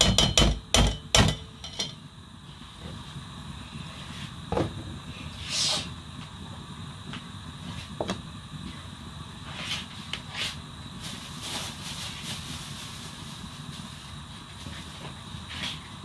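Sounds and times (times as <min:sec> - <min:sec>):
pot boiling with low rumble: 0:00.0 - 0:16.0
steam hissing from under lid: 0:02.4 - 0:06.0, 0:09.4 - 0:16.0.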